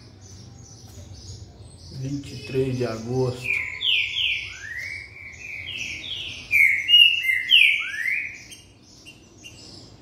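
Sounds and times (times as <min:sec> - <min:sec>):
bird singing slurred whistles: 0:03.4 - 0:09.7.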